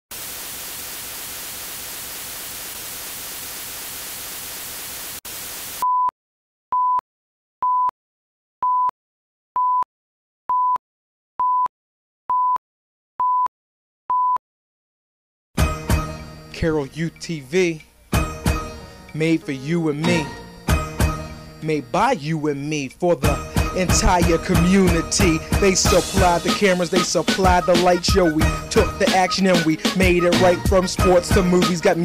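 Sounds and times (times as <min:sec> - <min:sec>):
static hiss: 0:00.1 - 0:05.8.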